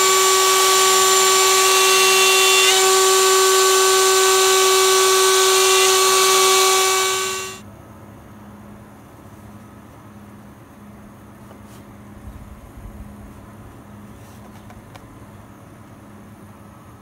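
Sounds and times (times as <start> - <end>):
router spindle whining: 0.0 - 7.6.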